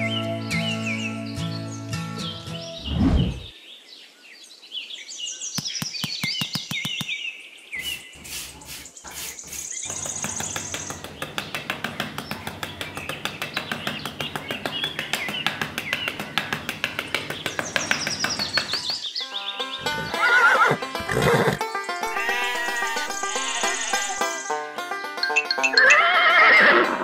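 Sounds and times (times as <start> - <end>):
birds chirping: 0.0 - 26.5
quick clicks: 5.6 - 7.2, 9.9 - 19.0
rapid steady ticking: 9.4 - 19.0.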